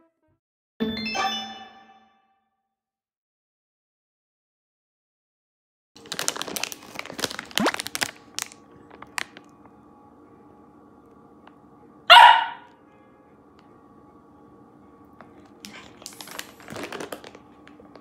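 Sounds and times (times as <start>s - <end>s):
plastic pouch crinkling: 6.0s - 9.5s, 15.4s - 18.0s
puppy barking: 12.1s - 12.7s.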